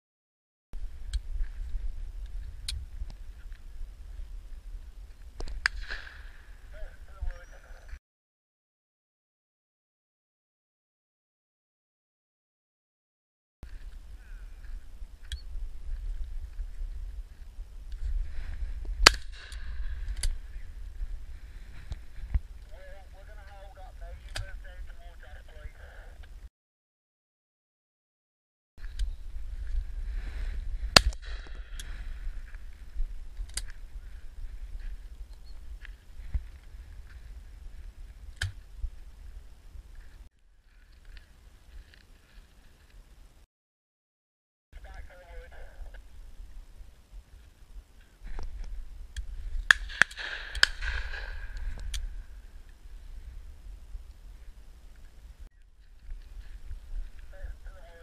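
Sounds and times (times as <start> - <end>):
low rumble on microphone: 0.8 - 8.0, 13.6 - 26.4, 28.8 - 43.4, 44.8 - 58.0
shotgun shots: 5.6 - 6.4, 19.0 - 20.0, 49.7 - 51.6.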